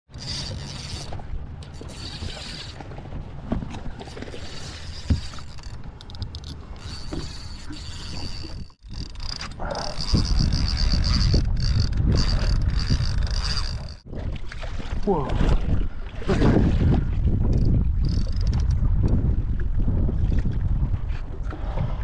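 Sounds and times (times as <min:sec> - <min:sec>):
fishing reel clicking: 0:00.1 - 0:02.8, 0:04.3 - 0:14.0, 0:17.6 - 0:18.8
fishing rod handling: 0:00.1 - 0:14.0
wind rumbling on microphone: 0:00.1 - 0:22.0.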